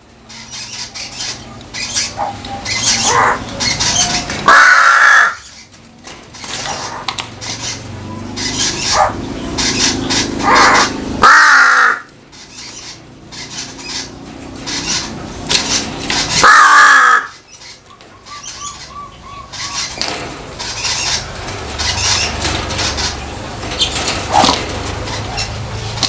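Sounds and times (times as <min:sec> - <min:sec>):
crow cawing: 0:04.4 - 0:05.5, 0:10.5 - 0:12.1, 0:16.4 - 0:17.4.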